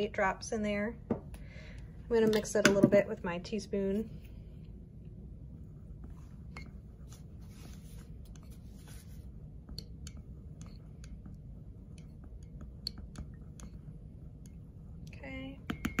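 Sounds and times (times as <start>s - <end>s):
teaspoon stirring in a cup: 6.5s - 16.0s.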